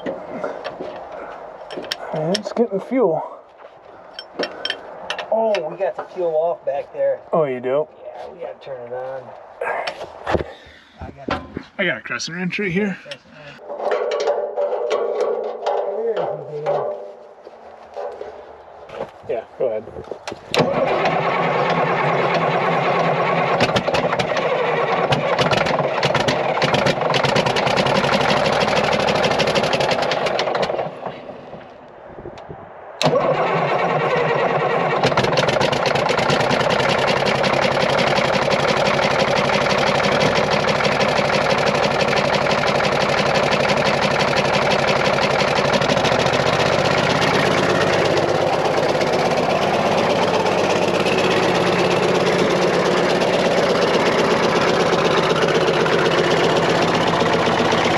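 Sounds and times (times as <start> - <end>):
diesel engine cranking and running: 0.0 - 3.0, 20.2 - 31.9, 33.0 - 57.9.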